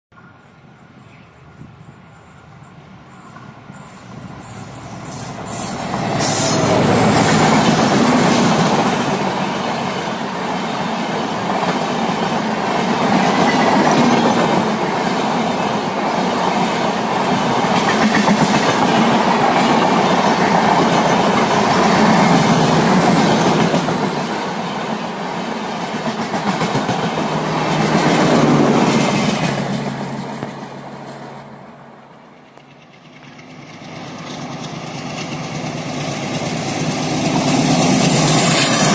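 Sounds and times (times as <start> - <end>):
diesel locomotive passing: 0.1 - 38.9
train wheels clattering over rail joints: 25.8 - 31.3.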